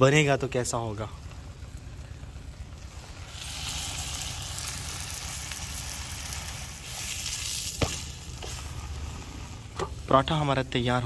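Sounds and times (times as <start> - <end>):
flatbread sizzling in butter: 1.4 - 10.1.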